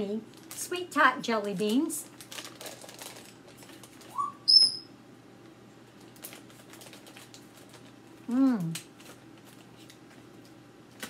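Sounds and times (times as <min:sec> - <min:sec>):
plastic bag rustling: 0:02.1 - 0:04.2, 0:06.0 - 0:08.2
whistle-like chirps: 0:04.1 - 0:04.9.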